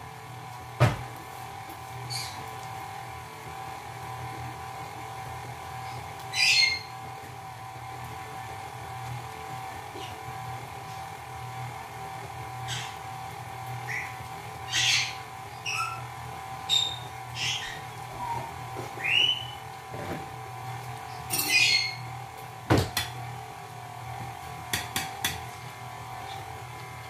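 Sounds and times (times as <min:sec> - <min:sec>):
steady hum: 0:00.0 - 0:27.0
parrots squawking: 0:02.1 - 0:02.5, 0:06.3 - 0:07.0, 0:12.6 - 0:13.1, 0:13.8 - 0:19.6, 0:21.1 - 0:22.2.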